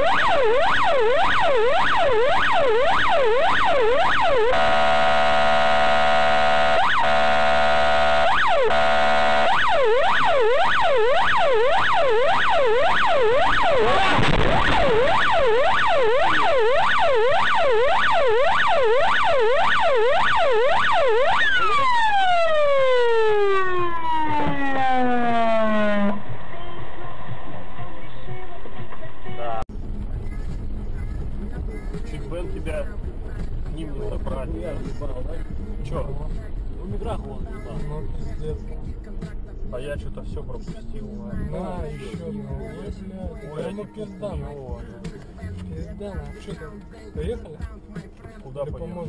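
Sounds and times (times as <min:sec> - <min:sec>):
siren yelping: 0:00.0 - 0:26.3
steady horn blast: 0:04.3 - 0:10.6.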